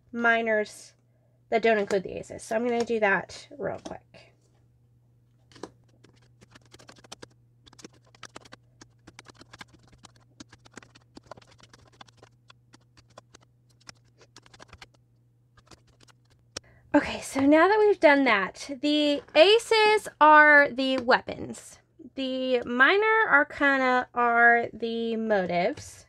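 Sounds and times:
cards flicking and tapping: 5.4 - 15.0, 15.6 - 16.7.

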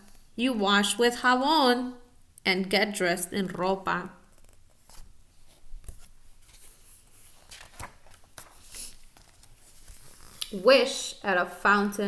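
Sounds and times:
paper pages rustling: 4.3 - 10.6.

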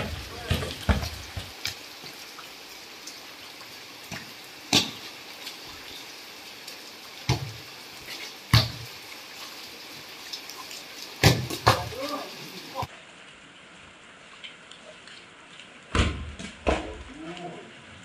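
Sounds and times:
heavy rain on concrete: 0.0 - 18.0
hands slapping wet volleyball: 11.2 - 11.9.

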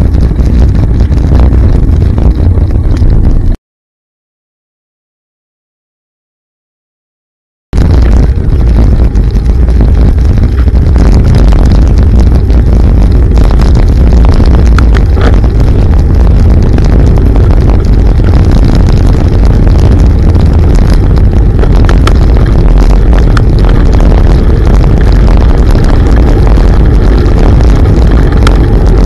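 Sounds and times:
wind buffeting microphone: 0.0 - 3.6, 7.8 - 29.0.

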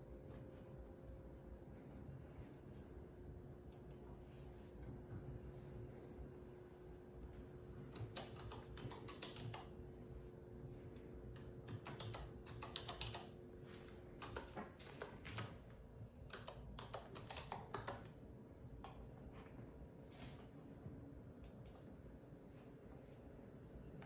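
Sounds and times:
typing on keyboard: 7.8 - 9.9, 11.3 - 18.2.

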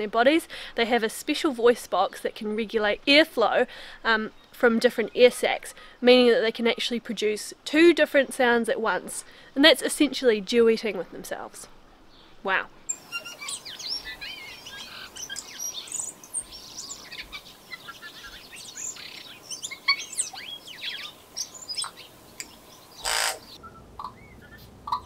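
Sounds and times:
bird singing: 12.9 - 25.0.

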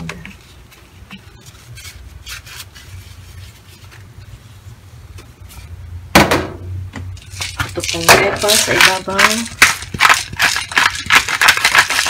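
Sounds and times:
tissue wiping a ceramic plate: 1.4 - 4.8.

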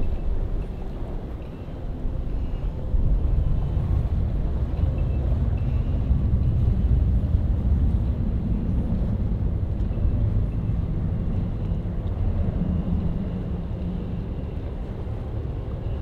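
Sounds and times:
jet engines rumbling: 0.0 - 16.0.

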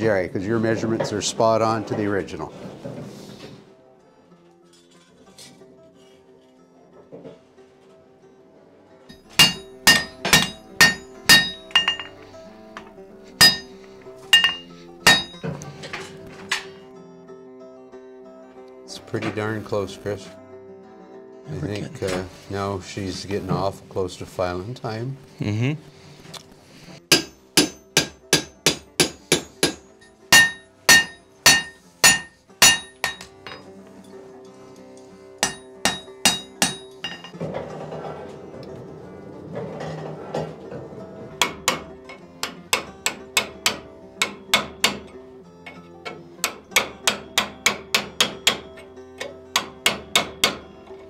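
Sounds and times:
hammer striking metal on anvil: 9.1 - 12.2, 12.8 - 15.5, 27.1 - 33.7, 35.4 - 37.4, 41.4 - 51.0.

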